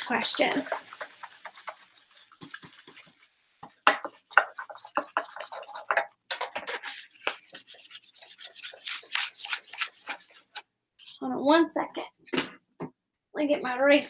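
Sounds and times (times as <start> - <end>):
dry-erase board being rubbed: 0.1 - 3.2, 4.0 - 10.5.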